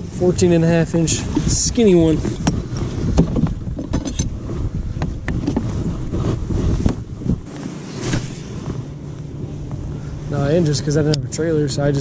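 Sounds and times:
wind buffeting microphone: 0.0s - 12.0s
knocks and clicks from handling gear: 2.2s - 4.3s.

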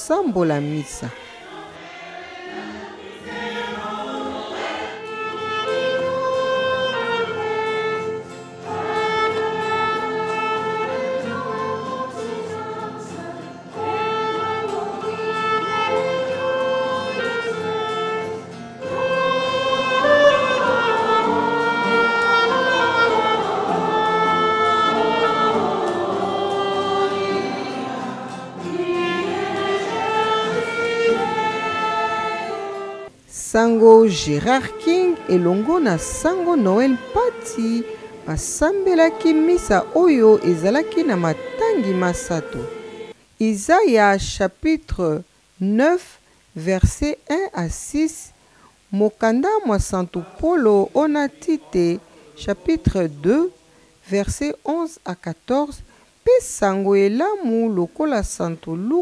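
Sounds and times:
acoustic guitars: 0.0s - 45.2s
choir and congregation singing: 0.3s - 33.1s, 33.8s - 43.2s
clarinet: 5.0s - 33.1s, 33.9s - 43.1s.

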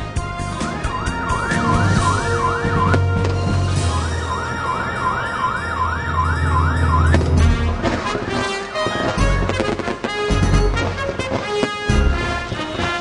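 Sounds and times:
deep bass: 0.0s - 8.3s
siren-like synth wailing: 0.4s - 9.1s.

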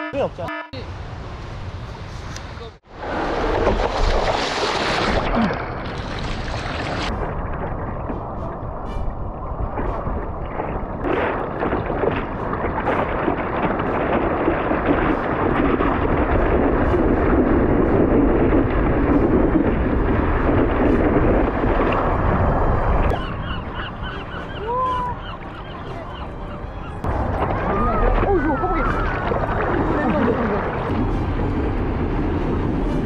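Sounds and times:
water splashing against surfboard: 3.0s - 22.2s
gulls calling: 23.1s - 31.1s.

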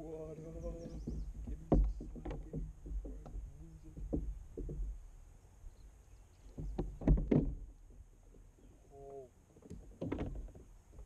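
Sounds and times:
knocks on plastic kayak hull: 0.7s - 5.0s, 6.5s - 7.7s.

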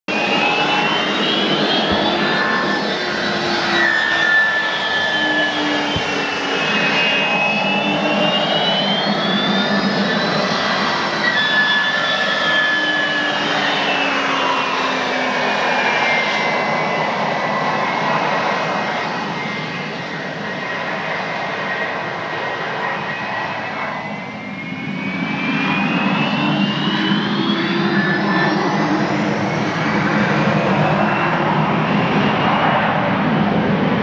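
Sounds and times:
jet engines whining: 0.1s - 34.0s.

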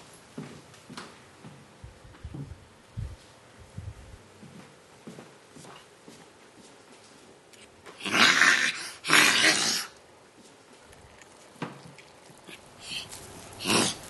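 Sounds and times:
child sniffing loudly: 12.8s - 14.0s.

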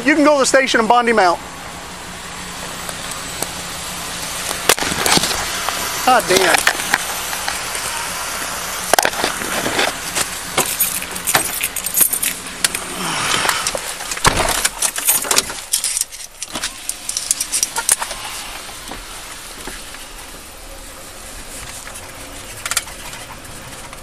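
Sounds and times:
heavy thump: 14.2s - 14.7s.

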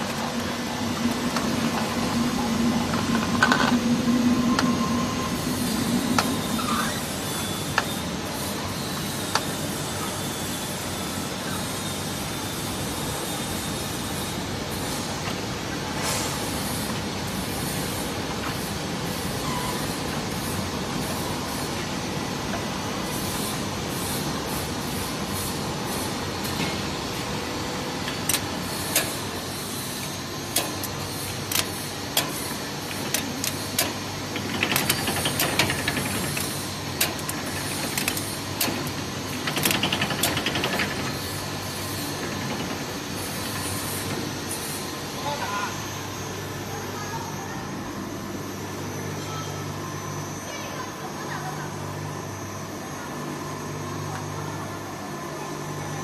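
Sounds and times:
bottling machine hum: 0.0s - 56.0s
sharp machine clacks: 33.0s - 41.4s.

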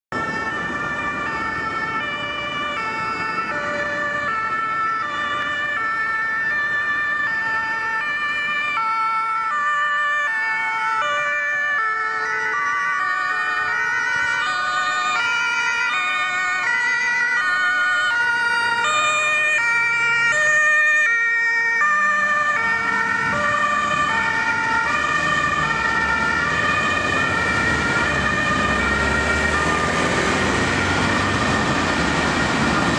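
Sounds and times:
two-tone emergency sirens: 0.1s - 32.9s
vehicle rumble: 22.1s - 32.9s.

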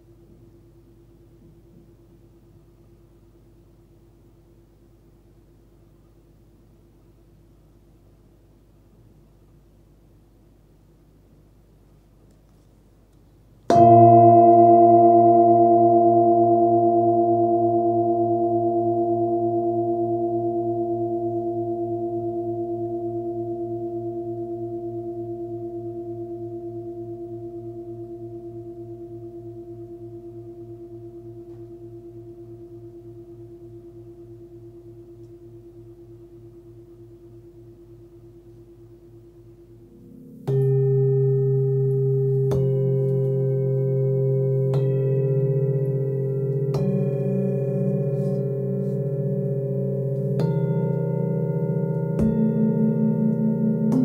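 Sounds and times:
singing bowl ringing: 13.7s - 54.0s.

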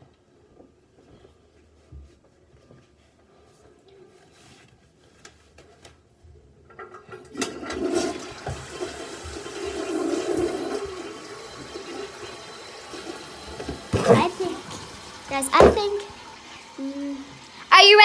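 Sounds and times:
toilet flushing: 6.7s - 18.0s.

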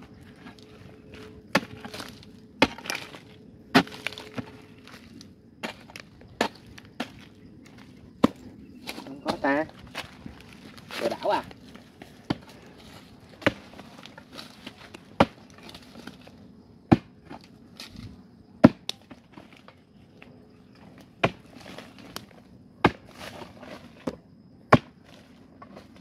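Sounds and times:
loose soil rustling: 0.0s - 16.5s, 19.0s - 24.3s
digging tool striking hard earth: 0.4s - 16.3s, 21.2s - 25.0s.

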